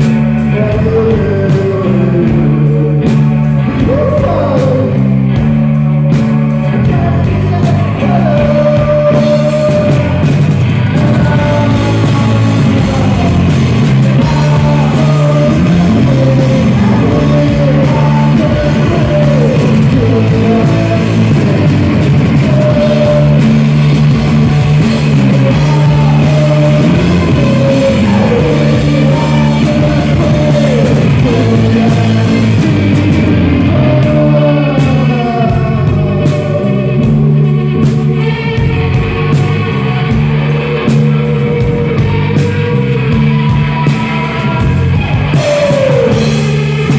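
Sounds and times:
man singing: 0.0s - 46.9s
rock band playing: 0.0s - 46.9s.

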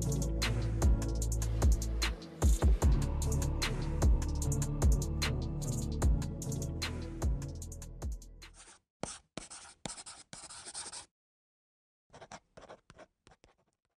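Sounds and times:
music with drum hit: 0.0s - 8.2s
pen scratching on paper: 8.5s - 11.1s, 12.1s - 14.0s.

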